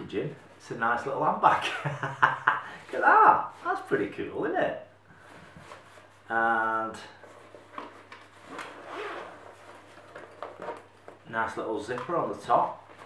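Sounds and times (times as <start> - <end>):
person speaking: 0.0 - 4.9, 6.2 - 7.3, 11.2 - 12.9
cloth rustling: 7.1 - 13.0
bag zip opening: 8.4 - 10.8.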